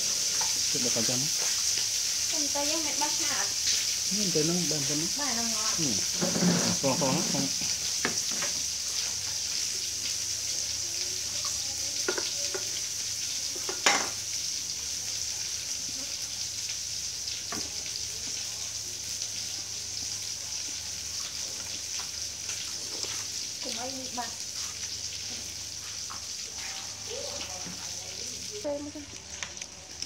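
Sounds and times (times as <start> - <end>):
steady high hiss: 0.0 - 11.9
plates knocking on wooden table: 8.0 - 8.6, 13.6 - 14.2.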